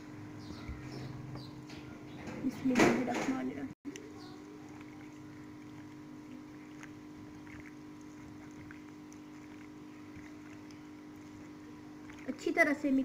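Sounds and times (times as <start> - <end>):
steady low hum: 0.0 - 13.0
hands squishing wet marinade: 3.9 - 13.0.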